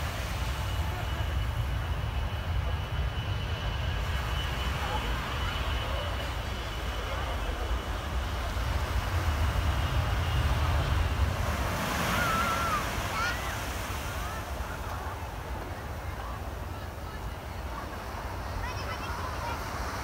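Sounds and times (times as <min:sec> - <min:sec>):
small waves breaking on sand: 0:08.4 - 0:20.0.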